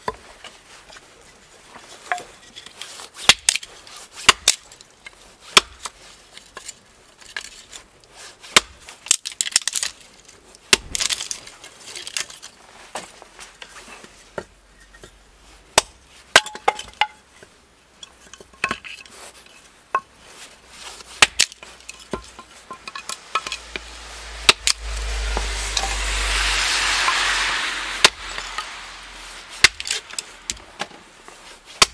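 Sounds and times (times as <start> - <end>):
hatchet splitting wooden boards: 5.6 - 5.9, 21.2 - 23.5
split sticks rattling: 21.2 - 31.6.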